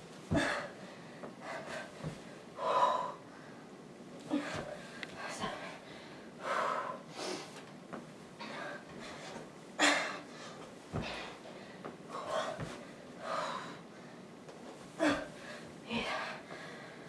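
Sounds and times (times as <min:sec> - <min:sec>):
woman breathing hard: 0:00.3 - 0:07.6, 0:08.4 - 0:14.3, 0:15.0 - 0:17.0
body thumping on carpeted floor: 0:02.0 - 0:02.3, 0:10.9 - 0:12.8.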